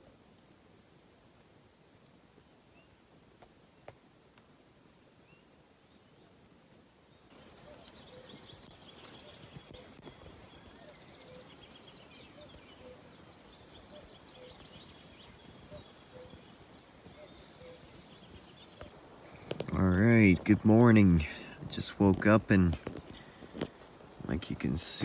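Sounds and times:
birds chirping and trilling: 5.2 - 25.0.

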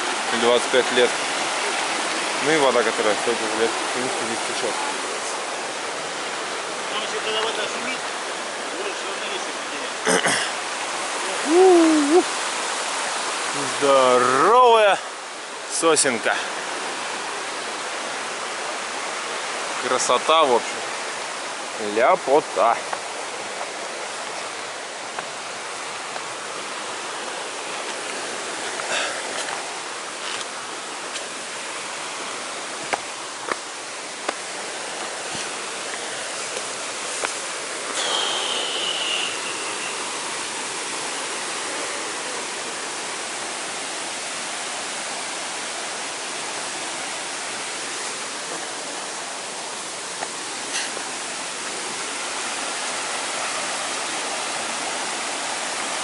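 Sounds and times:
stream rushing over boulders: 0.0 - 56.0
high whistle: 38.0 - 40.0.

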